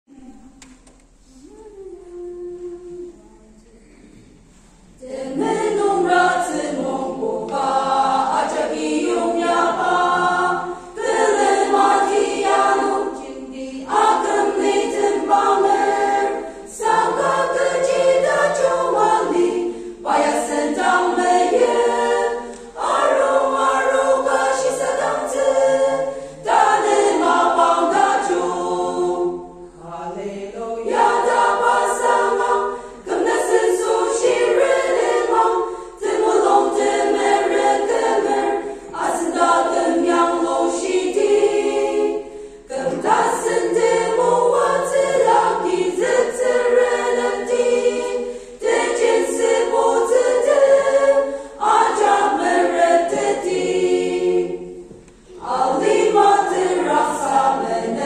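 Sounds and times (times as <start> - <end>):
women's choir singing: 1.2 - 58.0.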